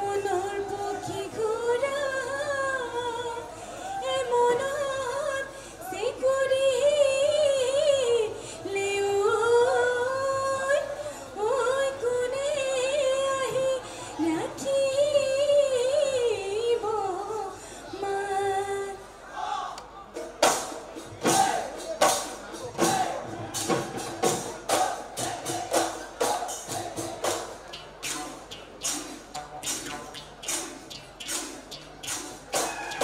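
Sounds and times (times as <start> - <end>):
singer breathing: 3.4 - 4.0, 5.5 - 5.8, 8.3 - 8.7, 13.8 - 14.2, 17.5 - 18.0.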